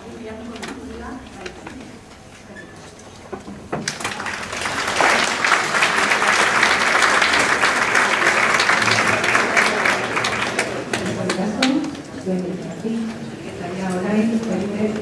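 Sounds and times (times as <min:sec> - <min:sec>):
audience applauding: 0:03.8 - 0:11.8.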